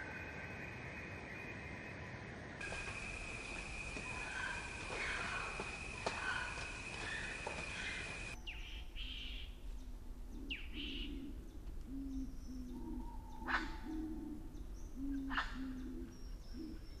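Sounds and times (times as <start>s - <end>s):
bird hooting: 2.6s - 8.4s
birds chirping: 2.6s - 8.6s
sharp bird calls: 2.6s - 9.4s.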